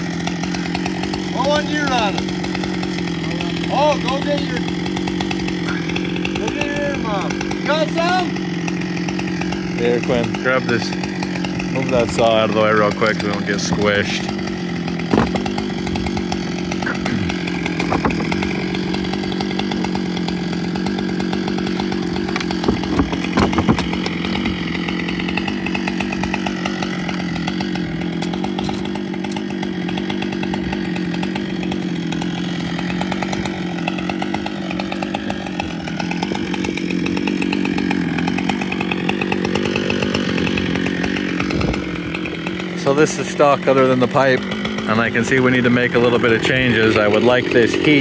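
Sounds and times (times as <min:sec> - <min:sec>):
chainsaw engine idling: 0:00.0 - 0:48.0
sharp knocks: 0:15.1 - 0:16.2, 0:17.6 - 0:18.4, 0:22.3 - 0:24.2.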